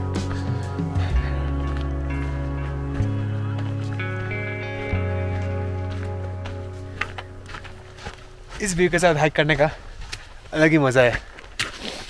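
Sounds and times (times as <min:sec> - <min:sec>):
low bass tone: 0:00.0 - 0:08.6
background music with held notes: 0:00.0 - 0:09.4.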